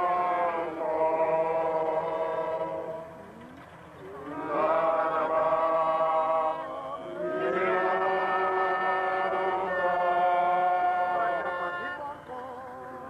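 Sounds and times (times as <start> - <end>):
voices chanting long notes: 0.0 - 13.0.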